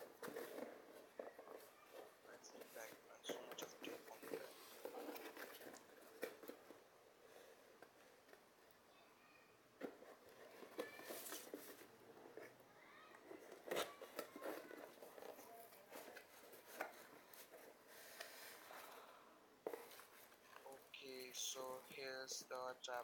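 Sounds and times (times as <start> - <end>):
cardboard scrapes and rustles: 0.0 - 7.6, 9.8 - 12.5, 13.3 - 19.0.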